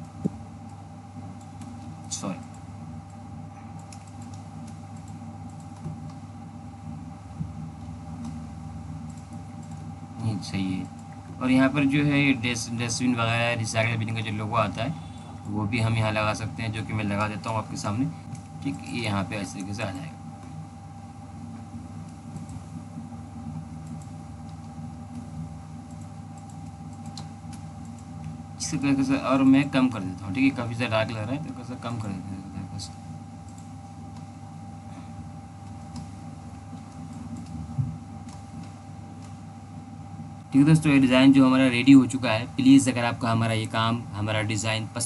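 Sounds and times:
steady low hum: 0:00.0 - 0:45.0
thin constant whine: 0:00.0 - 0:45.0
computer mouse and key clicks: 0:01.4 - 0:03.2, 0:03.8 - 0:06.2, 0:08.2 - 0:08.4, 0:09.0 - 0:09.9, 0:10.8 - 0:11.2, 0:18.3 - 0:19.8, 0:22.0 - 0:22.7, 0:23.8 - 0:28.4, 0:32.9 - 0:34.3, 0:35.6 - 0:37.6, 0:38.2 - 0:39.4
keyboard and mouse clicks: 0:03.8 - 0:06.2, 0:09.1 - 0:09.8, 0:22.0 - 0:22.6, 0:25.9 - 0:28.3, 0:38.2 - 0:39.4.

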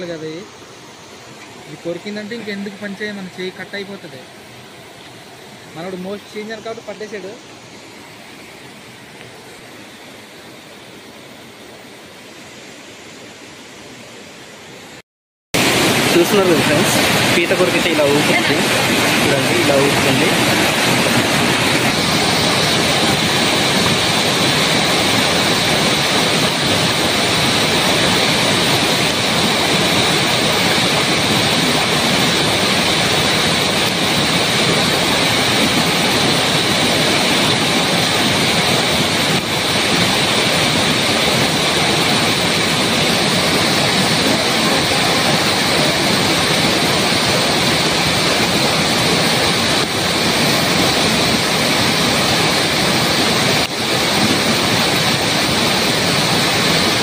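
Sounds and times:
waterfall rushing: 0:00.0 - 0:15.0, 0:15.6 - 0:57.0.

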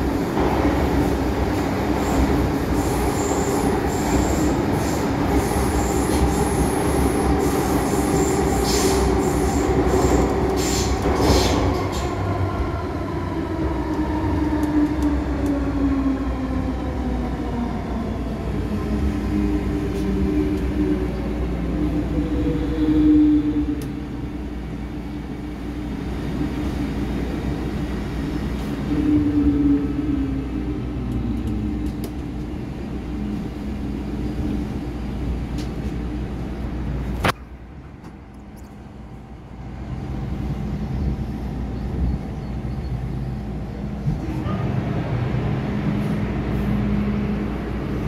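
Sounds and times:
train interior rumble: 0:00.0 - 0:48.0.

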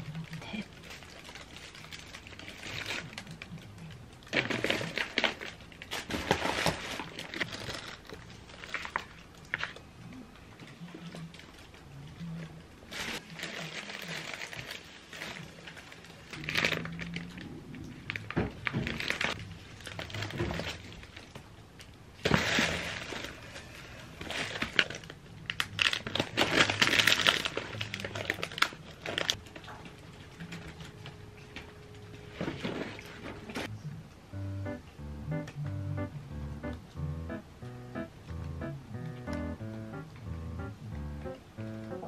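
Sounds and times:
plastic and paper bags rustling: 0:00.0 - 0:09.9, 0:12.8 - 0:21.6, 0:22.2 - 0:33.7.

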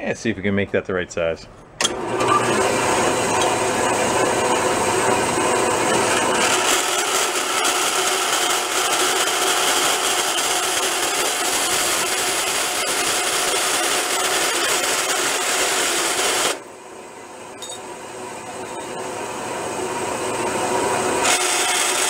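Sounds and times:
band saw cutting metal: 0:01.8 - 0:16.6, 0:21.1 - 0:22.0.

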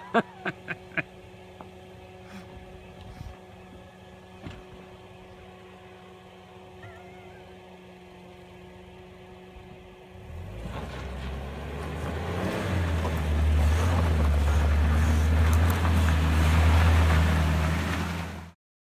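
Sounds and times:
car engine under load: 0:00.0 - 0:18.6
tyres crunching on gravel: 0:10.3 - 0:18.4.

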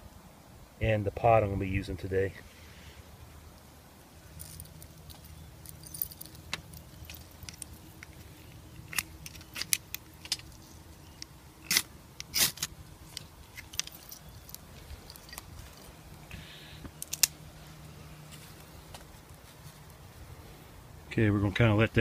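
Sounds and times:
metallic clinks and scrapes: 0:04.3 - 0:16.0.

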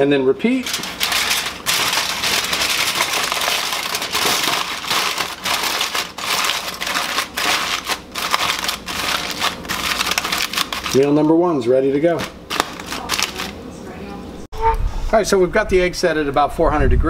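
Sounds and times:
aluminium foil crinkling: 0:00.4 - 0:13.6.

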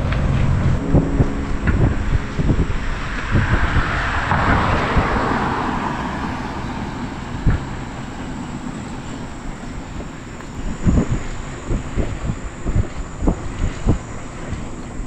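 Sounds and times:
car passing by: 0:00.0 - 0:12.3
wind rumble on microphone: 0:00.0 - 0:15.0.

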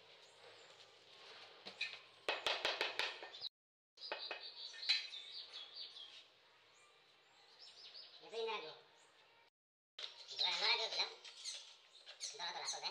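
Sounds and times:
birds chirping: 0:01.6 - 0:12.9
taps on ceramic tiles: 0:02.3 - 0:05.1.

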